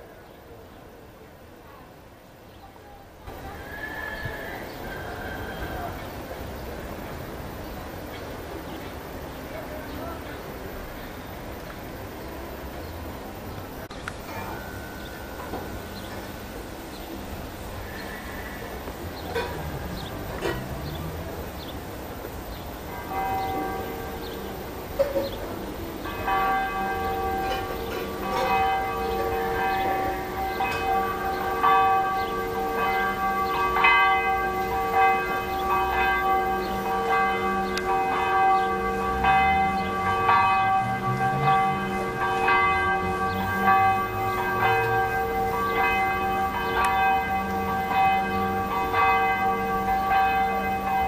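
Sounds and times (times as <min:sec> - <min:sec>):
church bells ringing: 0:14.2 - 0:17.8, 0:18.8 - 0:51.0.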